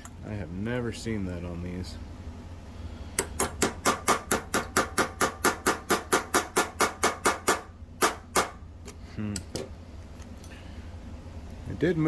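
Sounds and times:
pin punch struck with pliers: 3.2s - 8.6s.

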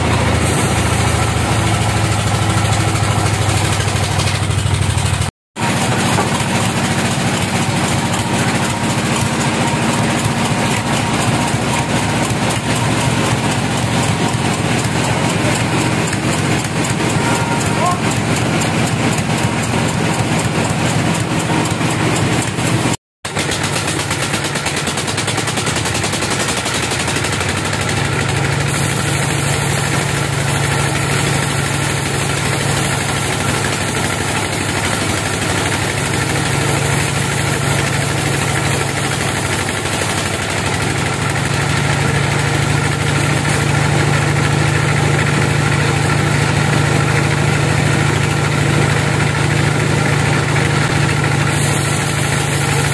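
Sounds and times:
bandsaw mill drone: 0.0s - 52.9s.

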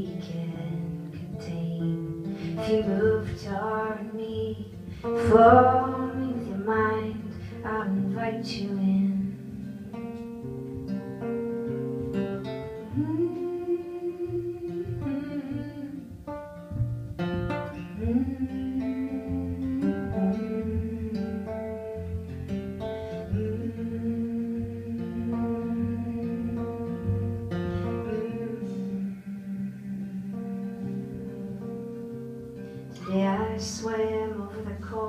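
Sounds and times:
acoustic guitar: 0.0s - 35.0s.

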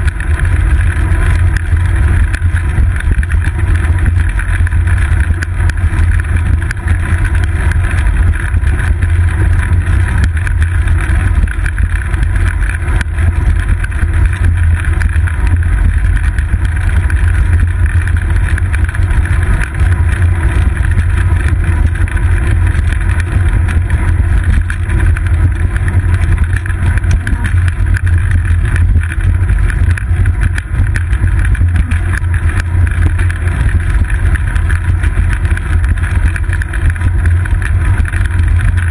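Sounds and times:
bicycle road vibration: 0.0s - 38.9s.

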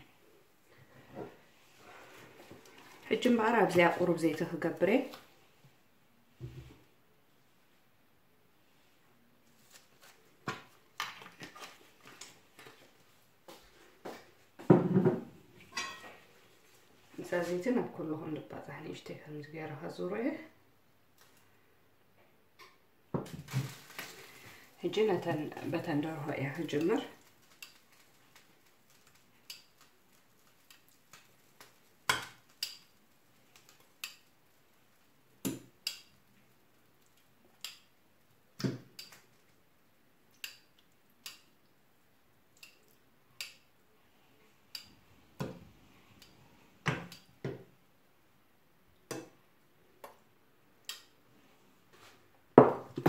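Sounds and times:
metal tongs clinking on pan: 15.8s - 16.0s.

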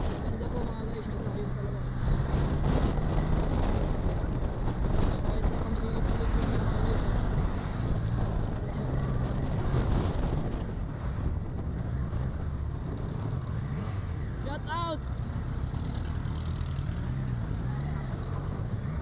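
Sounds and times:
wind noise on microphone: 1.9s - 13.4s.

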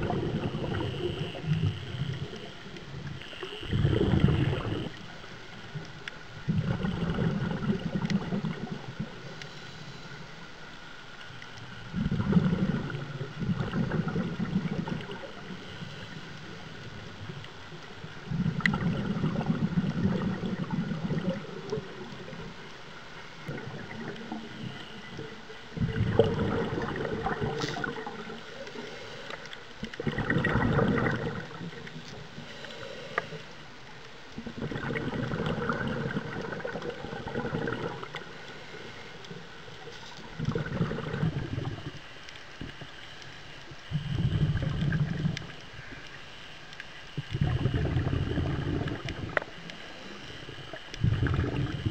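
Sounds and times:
bubbly regulator exhalations: 0.0s - 5.0s, 6.4s - 9.2s, 11.9s - 16.1s, 18.3s - 22.5s, 23.4s - 28.4s, 29.8s - 32.0s, 34.4s - 38.3s, 40.0s - 42.0s, 43.9s - 46.0s, 47.2s - 51.9s.

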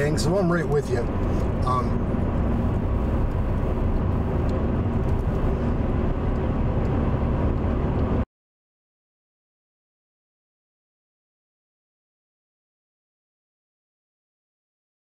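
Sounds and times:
car engine and road rumble: 0.0s - 8.3s.

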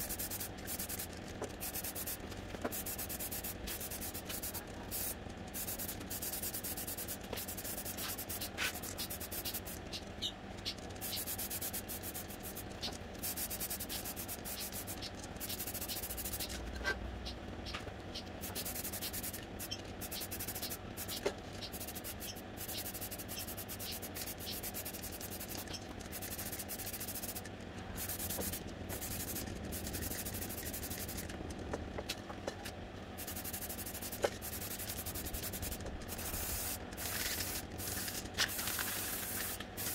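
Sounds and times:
aerosol spray can hissing: 0.0s - 9.8s, 18.4s - 21.2s, 33.2s - 39.9s.

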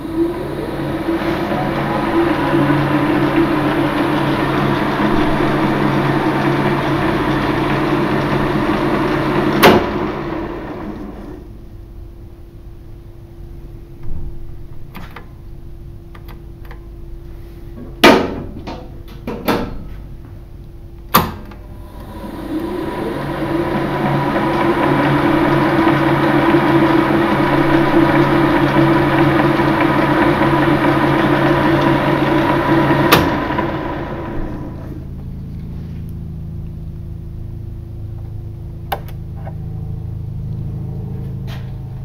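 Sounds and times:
lathe running hum and whine: 0.0s - 12.4s, 21.6s - 42.0s.

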